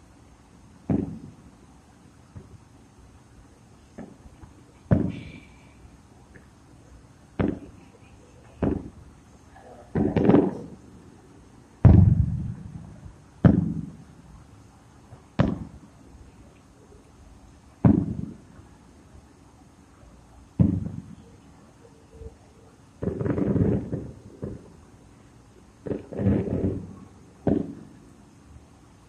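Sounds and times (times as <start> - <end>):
firework shells booming: 0.7 - 1.6, 2.2 - 2.7, 3.9 - 6.5, 7.3 - 11.1, 11.8 - 14.4, 15.1 - 16.0, 17.8 - 18.6, 20.5 - 21.4, 23.0 - 24.8, 25.8 - 28.1.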